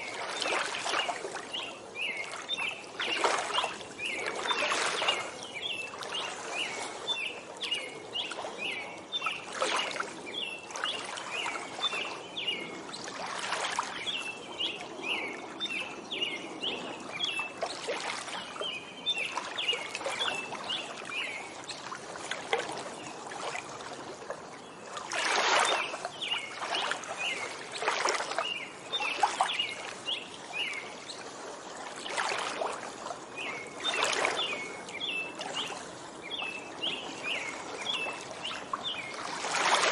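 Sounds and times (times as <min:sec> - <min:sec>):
songbird chirping: 0:00.0 - 0:21.9, 0:33.4 - 0:39.9
small waves lapping: 0:00.0 - 0:39.9.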